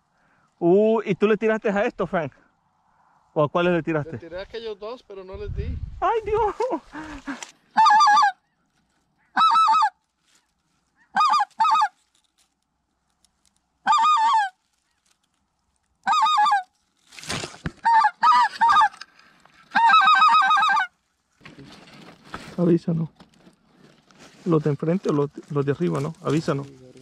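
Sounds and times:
goose honking: 7.8s - 8.5s, 9.2s - 10.0s, 11.0s - 12.0s, 13.8s - 14.6s, 16.0s - 16.7s, 17.8s - 19.0s, 19.7s - 20.9s
rustling: 8.4s - 9.3s, 9.9s - 27.0s.

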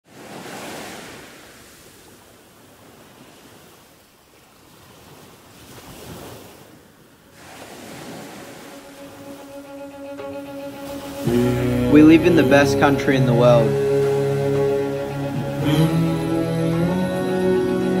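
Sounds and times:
ocean surf breaking on beach: 0.1s - 3.9s, 4.6s - 18.0s.

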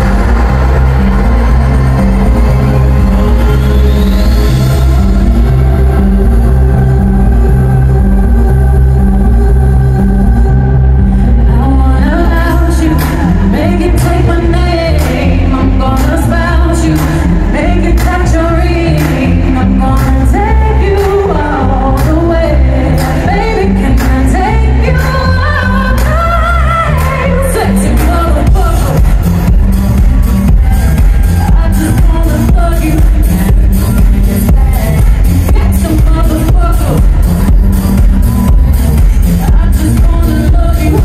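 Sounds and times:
live pop concert music: 0.0s - 41.0s.

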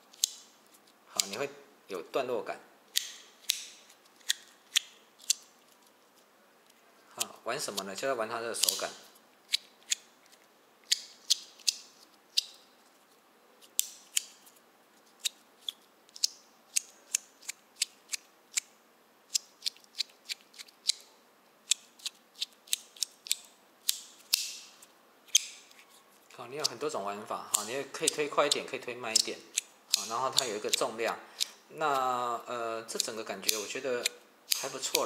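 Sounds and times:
metal fidget toy clicking: 27.5s - 31.6s, 32.9s - 35.0s.

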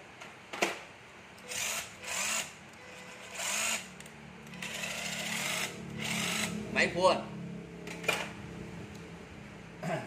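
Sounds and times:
tool motor humming: 1.4s - 3.9s, 4.5s - 6.7s.

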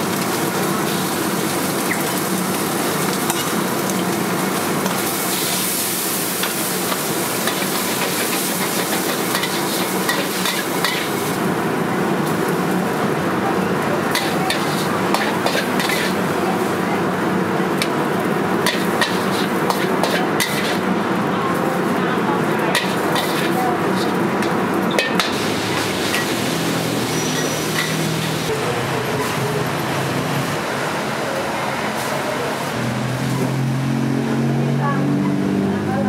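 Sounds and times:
food sizzling in a wok: 0.0s - 34.6s
metal ladle scraping a pan: 7.4s - 11.3s, 14.1s - 16.2s, 18.6s - 20.9s, 22.7s - 28.4s.

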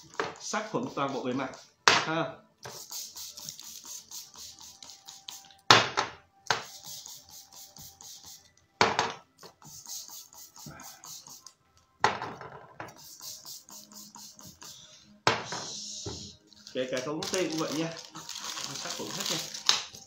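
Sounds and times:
music with ticking beat: 0.0s - 11.9s, 12.9s - 20.0s
glass jars knocking on tabletop: 12.0s - 12.9s.

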